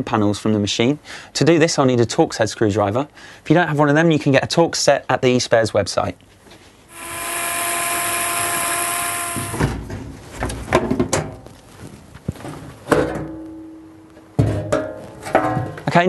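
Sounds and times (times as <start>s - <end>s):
power screwdriver whirring: 6.9s - 9.7s.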